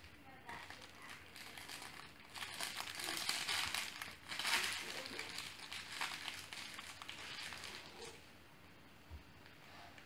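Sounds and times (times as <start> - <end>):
blankets rustling and crinkling: 0.5 - 8.2.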